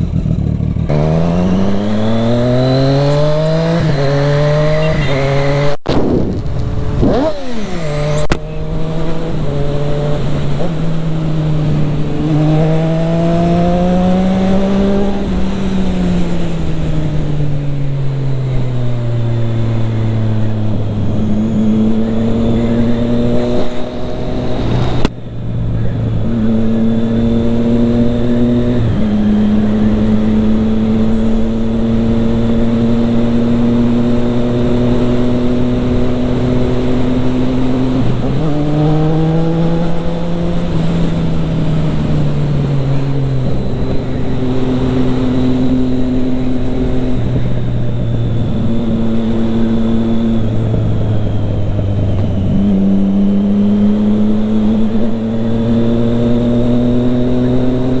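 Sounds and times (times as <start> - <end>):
motorcycle engine running: 0.0 - 5.3.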